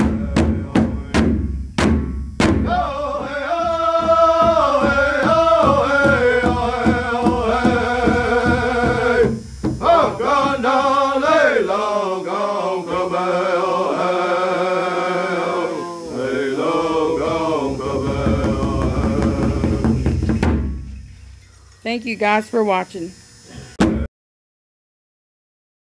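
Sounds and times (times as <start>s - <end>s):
men chanting a song: 0.0s - 1.6s, 2.6s - 20.3s
large drum steady beat: 0.0s - 10.9s, 17.0s - 21.4s.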